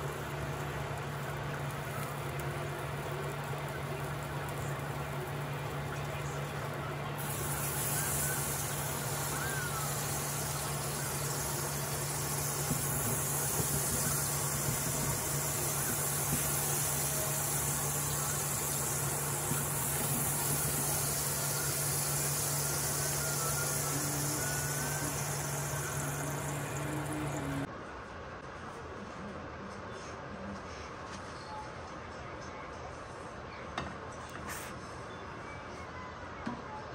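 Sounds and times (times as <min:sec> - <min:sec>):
food frying hiss: 0:00.0 - 0:27.7.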